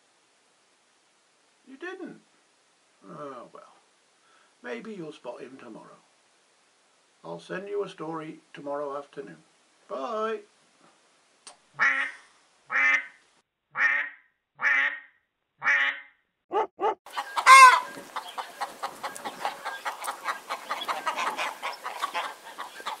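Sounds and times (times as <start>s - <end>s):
duck-like quacks: 11.8s - 13.2s, 13.8s - 16.1s, 17.1s - 23.0s
loud squawk: 15.6s - 23.0s
rapid chattering bird calls: 17.1s - 23.0s.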